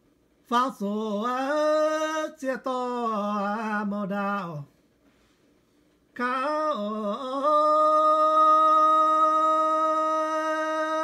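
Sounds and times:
man singing solo: 0:06.2 - 0:11.0.

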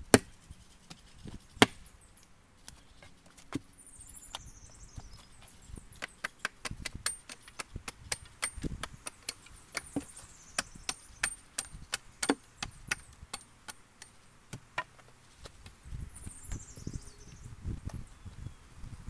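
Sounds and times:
hatchet chopping wood: 0:00.0 - 0:01.0, 0:01.6 - 0:01.9, 0:05.9 - 0:15.0.

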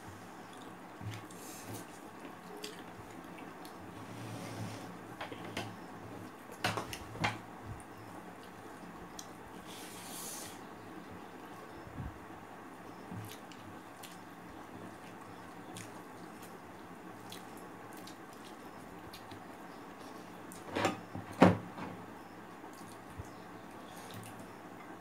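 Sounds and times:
eating mouth clicks and smacks: 0:13.2 - 0:14.3, 0:17.2 - 0:20.6, 0:22.7 - 0:23.4.

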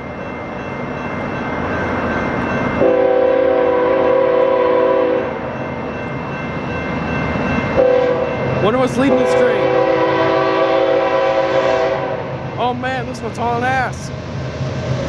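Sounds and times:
freight train rumbling: 0:00.0 - 0:15.0
locomotive air horn chord: 0:02.8 - 0:05.3, 0:07.8 - 0:08.3, 0:09.1 - 0:12.4.

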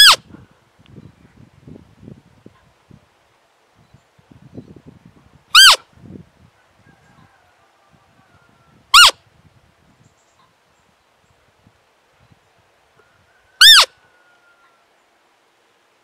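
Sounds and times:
deer lure call squeaks: 0:00.0 - 0:00.2, 0:05.6 - 0:05.8, 0:09.0 - 0:09.2, 0:13.6 - 0:13.9.

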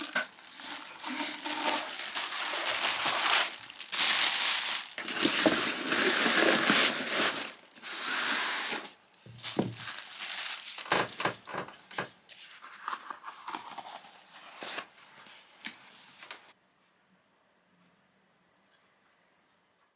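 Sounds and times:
packaging crinkling: 0:00.0 - 0:11.8
paper roll rustling and unrolling: 0:00.0 - 0:16.6.

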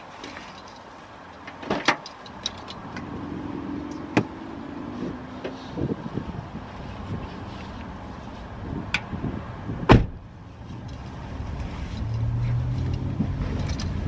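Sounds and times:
car door shutting: 0:09.8 - 0:10.2.

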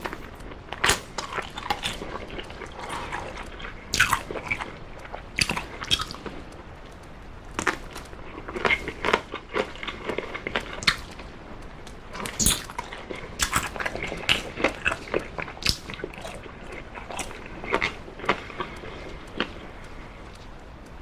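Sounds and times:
person biting and chewing: 0:00.0 - 0:06.2, 0:12.2 - 0:19.6
crackly bites and smacking: 0:00.0 - 0:21.0.

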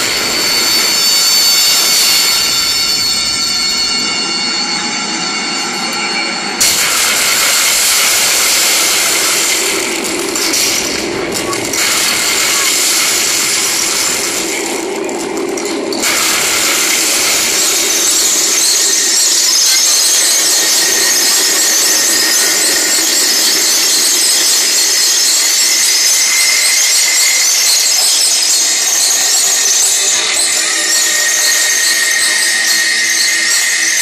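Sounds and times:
harsh screeching hiss soundtrack: 0:00.0 - 0:34.0.

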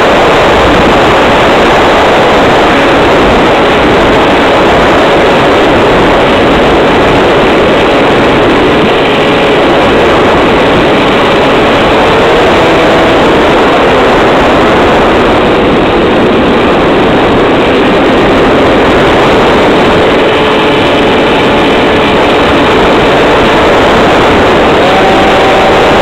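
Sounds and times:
motor and propeller whine: 0:00.0 - 0:26.0
wind noise on microphone: 0:00.0 - 0:26.0.

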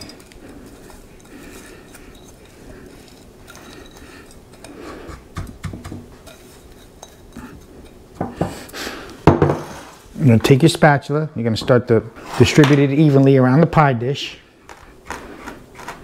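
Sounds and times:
utensil knocking against dishes: 0:05.4 - 0:06.1, 0:08.2 - 0:08.6, 0:09.2 - 0:09.7.

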